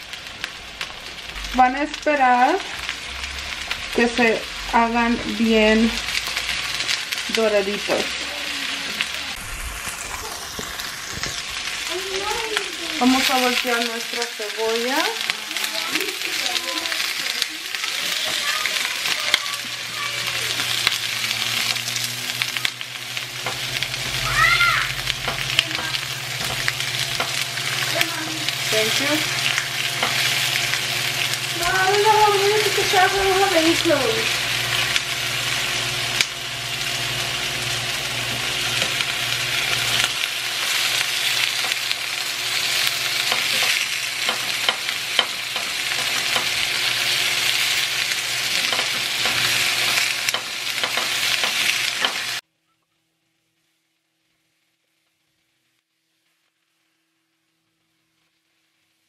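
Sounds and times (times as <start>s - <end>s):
vegetables sizzling in a skillet: 0.0s - 52.4s, 53.7s - 59.0s
tongs clicking against pan: 43.2s - 46.6s, 48.6s - 52.2s.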